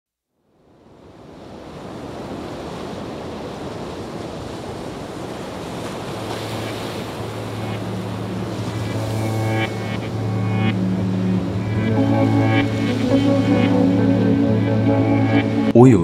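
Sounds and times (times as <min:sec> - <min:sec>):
rushing ambient noise: 0:06.1 - 0:16.0
low ambient music drone: 0:06.5 - 0:15.8.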